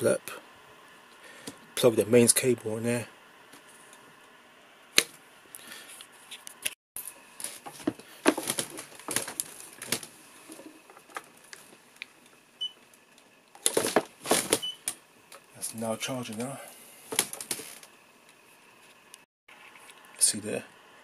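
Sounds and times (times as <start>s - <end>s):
charging cable clicks and knocks: 7.4s - 11.7s, 13.6s - 15.0s.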